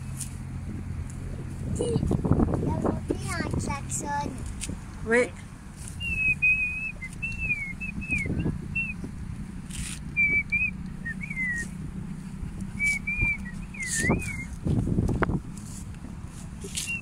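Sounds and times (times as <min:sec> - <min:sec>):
low steady rumble: 0:00.0 - 0:17.0
person whistling a tune: 0:06.0 - 0:09.0, 0:10.2 - 0:11.7, 0:12.8 - 0:14.6, 0:16.8 - 0:17.0.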